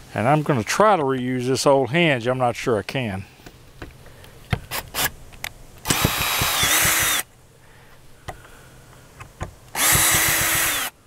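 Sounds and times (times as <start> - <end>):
cordless drill running: 5.8 - 7.3, 9.7 - 11.0.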